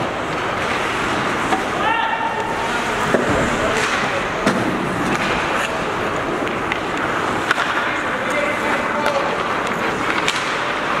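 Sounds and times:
skates scraping on ice: 0.0s - 4.2s, 4.8s - 11.0s
sticks and puck knocking: 5.0s - 11.0s.

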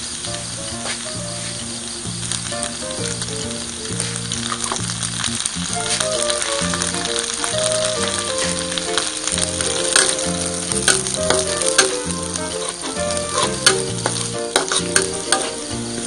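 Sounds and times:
background music: 0.0s - 16.0s
garlic sizzling in hot oil: 0.0s - 16.0s
metal spatula scraping a pan: 8.8s - 15.7s.

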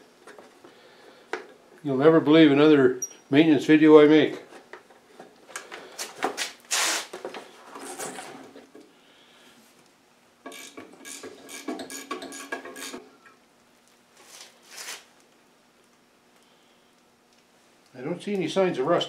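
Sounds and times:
wrench on metal fittings: 10.5s - 13.0s.

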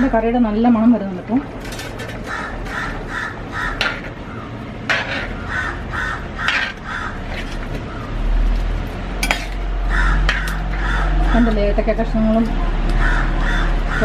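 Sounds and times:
crows cawing: 2.1s - 8.2s, 9.8s - 11.6s, 12.9s - 14.0s
ladle scraping in pot: 4.9s - 5.4s, 6.5s - 7.8s.

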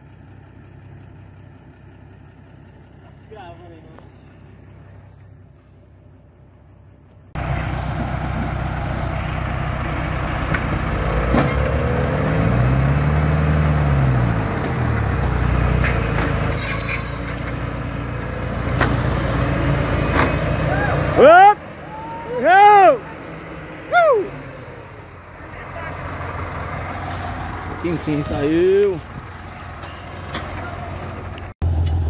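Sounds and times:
heavy machinery engine under load: 7.4s - 21.9s, 23.1s - 32.0s.

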